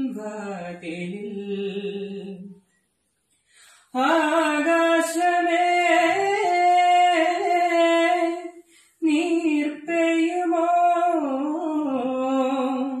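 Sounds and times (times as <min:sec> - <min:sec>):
solo voice singing: 0:00.0 - 0:02.6, 0:03.9 - 0:13.0.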